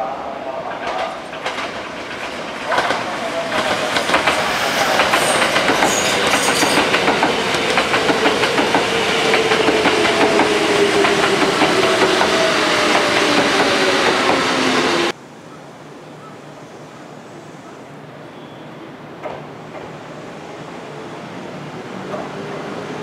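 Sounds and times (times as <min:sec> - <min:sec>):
train rail noise: 0:00.0 - 0:15.2, 0:16.4 - 0:23.0.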